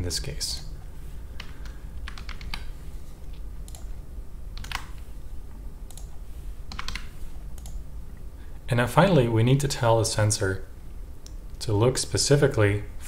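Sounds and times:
low steady hum: 0:00.0 - 0:13.0
keyboard typing: 0:01.4 - 0:02.7, 0:03.6 - 0:04.0, 0:04.6 - 0:05.0, 0:05.9 - 0:07.8.

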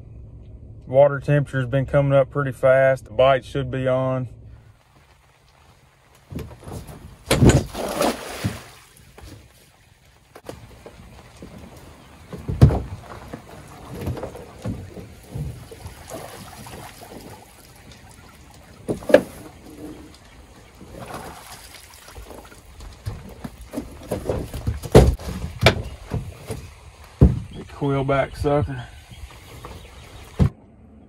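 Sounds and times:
weighted net thumping on deck: 0:06.3 - 0:09.4, 0:12.2 - 0:17.4, 0:20.9 - 0:27.6.

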